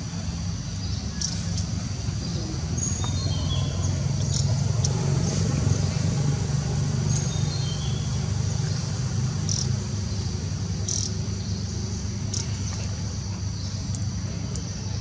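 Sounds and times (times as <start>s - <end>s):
insects buzzing: 0.0s - 15.0s.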